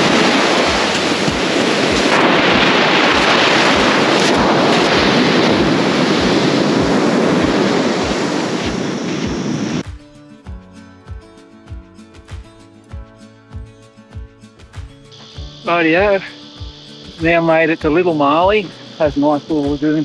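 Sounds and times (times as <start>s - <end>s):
surf breaking on beach: 0.0s - 9.8s, 15.2s - 16.3s
wind buffeting microphone: 0.0s - 9.8s.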